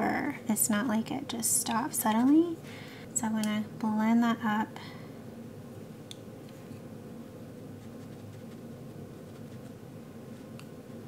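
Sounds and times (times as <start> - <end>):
low room hum: 0.0 - 11.0
brush on textured paper: 7.8 - 8.7, 9.3 - 11.0.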